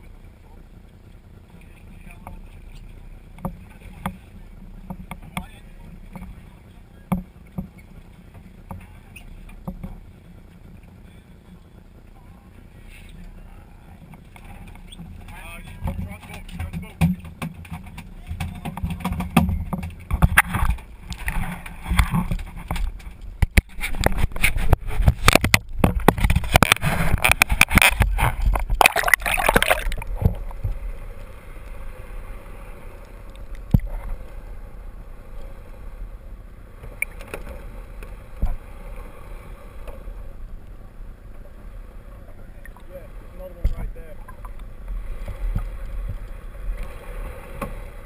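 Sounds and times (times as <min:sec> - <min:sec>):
muffled underwater sound: 0:00.0 - 0:48.0
water splashing and sloshing: 0:00.0 - 0:48.0.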